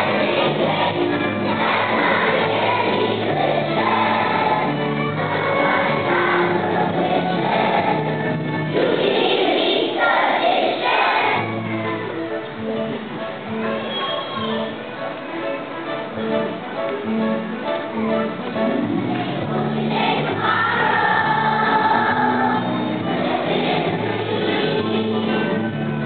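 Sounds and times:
instrumental accompaniment with bass: 0.0 - 9.7, 10.9 - 26.0
children's choir singing: 0.0 - 12.4, 17.9 - 26.0.

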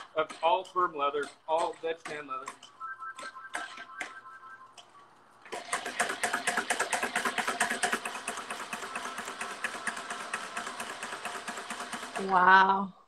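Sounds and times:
stitching machine clattering: 5.4 - 12.7.

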